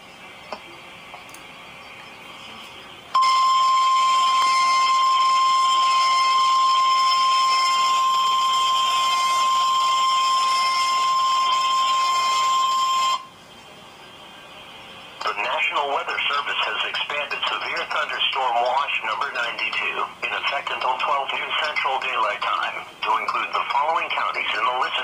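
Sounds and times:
loud single-pitch alert beep: 3.2s - 13.3s.

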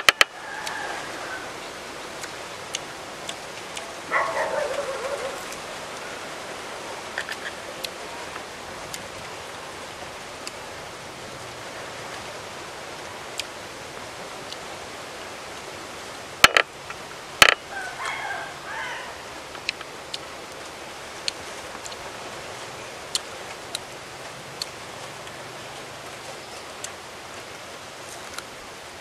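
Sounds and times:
steady outdoor hiss: 0.0s - 29.0s
tamarind pods snapping: 16.4s - 16.6s.

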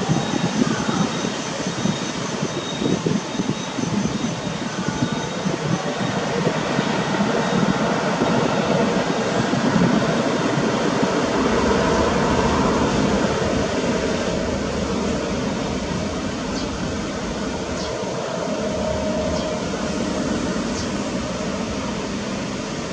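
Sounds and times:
jet engines roaring: 0.0s - 22.9s.

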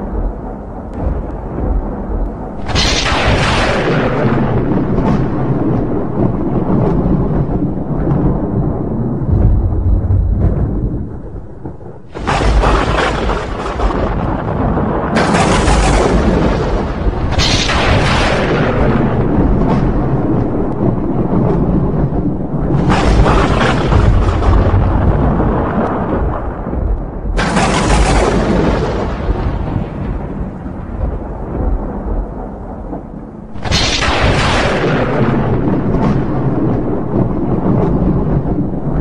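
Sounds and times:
thunder rolling: 0.0s - 39.0s
wind rushing over microphone: 0.0s - 39.0s.

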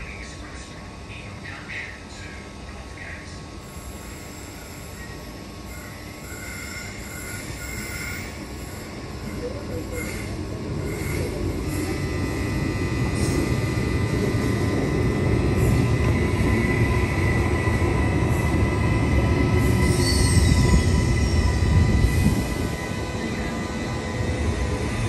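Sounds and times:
train wheels rumbling on rails: 5.7s - 25.0s.

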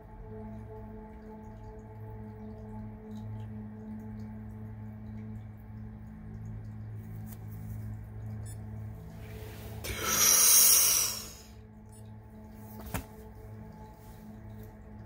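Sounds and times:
forceful human breath: 9.7s - 11.5s.

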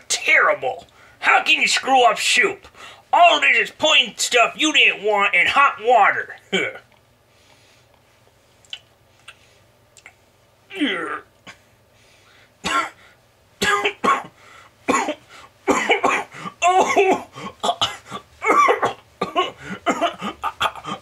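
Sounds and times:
man coughing and choking: 6.4s - 6.9s, 10.7s - 11.7s, 12.6s - 13.0s, 13.6s - 21.0s.

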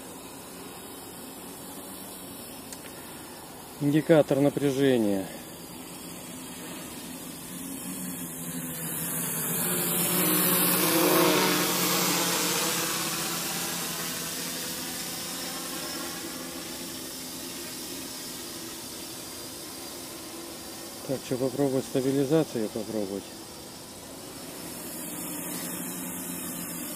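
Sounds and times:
drone propellers humming: 0.0s - 26.9s.

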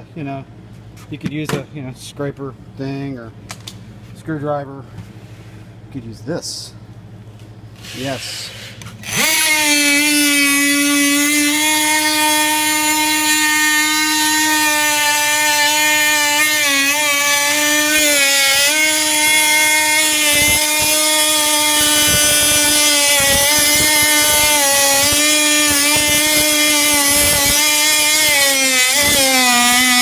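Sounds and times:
oscillating multi-tool buzzing: 9.0s - 30.0s.

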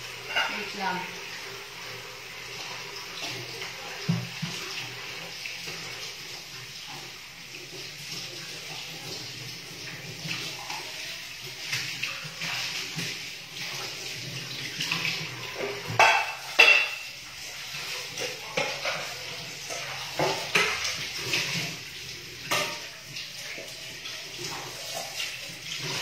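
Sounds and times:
tap water running: 0.0s - 26.0s
dishes clinking: 0.2s - 0.8s, 15.4s - 17.2s, 18.2s - 21.5s, 22.4s - 23.0s.

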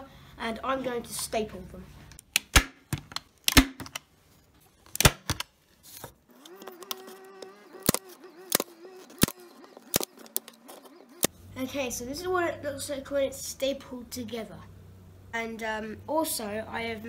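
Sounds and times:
wavering hum: 6.3s - 11.6s
staple gun snapping: 7.8s - 10.5s.

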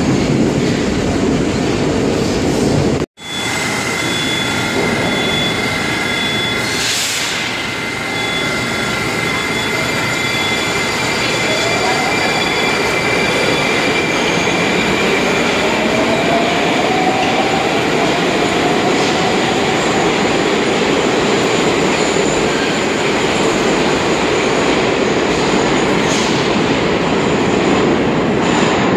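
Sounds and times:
faint train whine: 3.2s - 24.2s.

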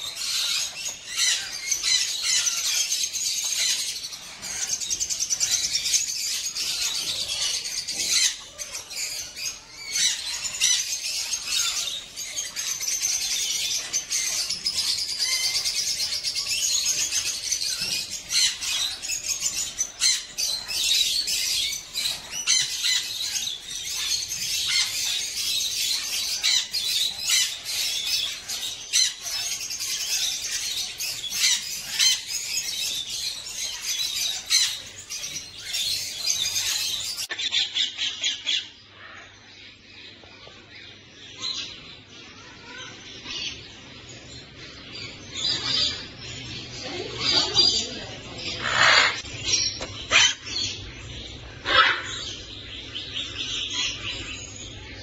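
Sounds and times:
sharp bird calls: 0.0s - 39.4s, 41.0s - 55.0s
birds chirping and squawking: 0.0s - 55.0s.

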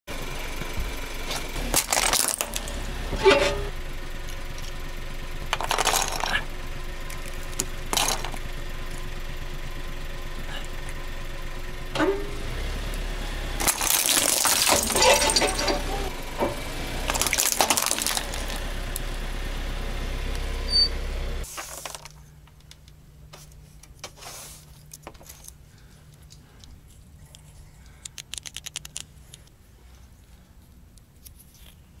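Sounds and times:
car engine running: 0.1s - 21.5s
plastic cube crunching under tyre: 1.6s - 2.7s, 5.5s - 8.5s, 13.6s - 15.6s, 17.0s - 18.6s.

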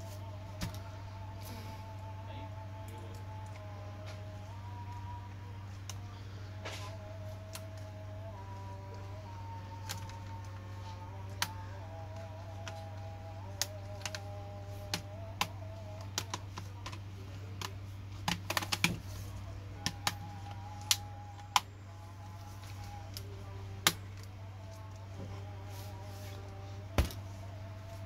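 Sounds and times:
laptop keys clicking: 17.6s - 19.0s.

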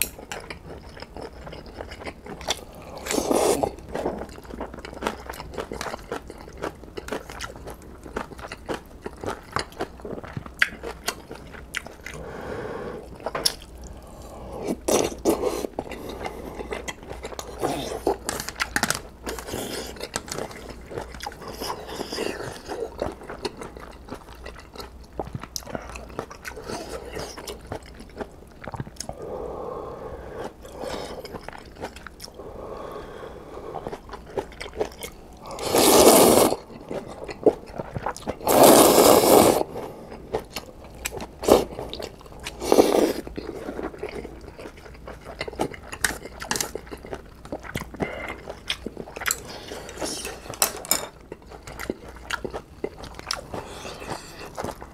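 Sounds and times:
wet chewing: 14.7s - 29.2s, 33.6s - 54.9s
slurping noodles: 35.4s - 37.1s, 38.4s - 40.0s, 42.5s - 43.3s, 53.4s - 54.9s.

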